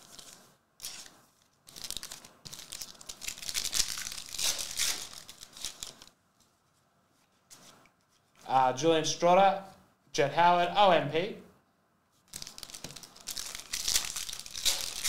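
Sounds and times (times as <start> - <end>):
foil wrapper tearing and crinkling: 0.0 - 6.1, 12.3 - 15.0.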